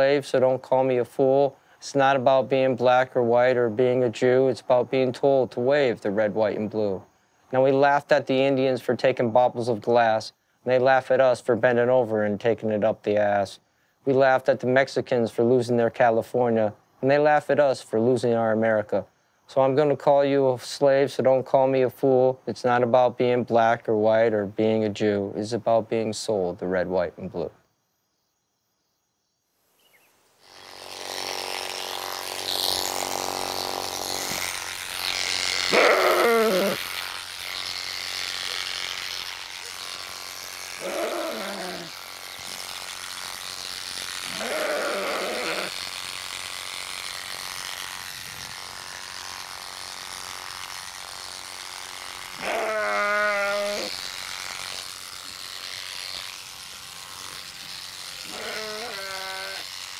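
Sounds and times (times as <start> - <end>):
electric clippers buzzing: 30.4 - 59.9
sheep bleating: 35.7 - 36.8, 40.8 - 42.0, 44.2 - 45.8, 52.4 - 54.0, 58.2 - 59.7.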